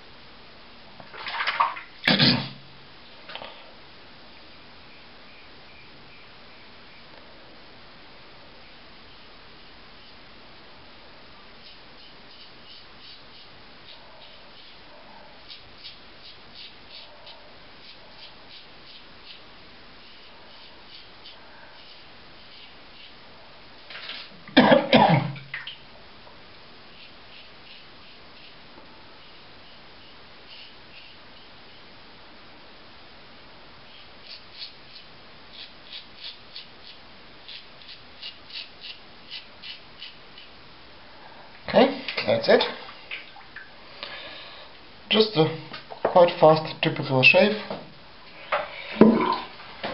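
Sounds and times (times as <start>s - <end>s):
faint steady hiss: 0.0s - 49.9s
razor scraping stubble: 15.5s - 19.4s, 34.2s - 40.5s.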